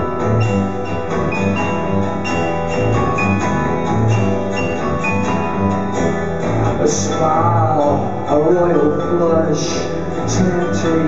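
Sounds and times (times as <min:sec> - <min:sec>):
pulsing low bass note: 0:00.0 - 0:08.3
live rock band instrumental: 0:00.0 - 0:11.0.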